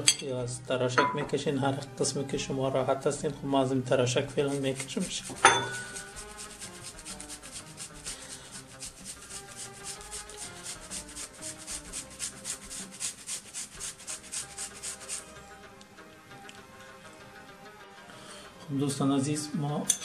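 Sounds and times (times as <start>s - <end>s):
grating on metal grater: 3.6s - 15.4s.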